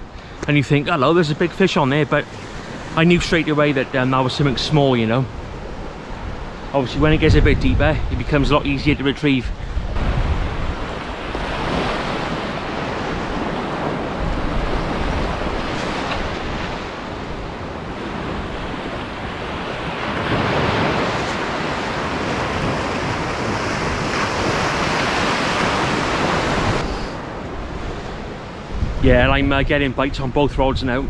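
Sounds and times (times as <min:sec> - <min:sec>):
waves washing up a beach: 0:00.0 - 0:30.0
wind buffeting microphone: 0:01.6 - 0:31.0.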